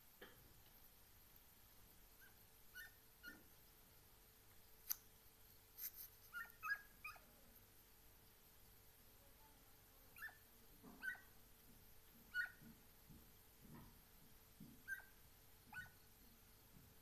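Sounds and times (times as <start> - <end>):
distant hounds yelping: 2.2 - 3.5, 6.4 - 7.3, 10.2 - 11.4, 12.2 - 12.8, 14.7 - 16.1.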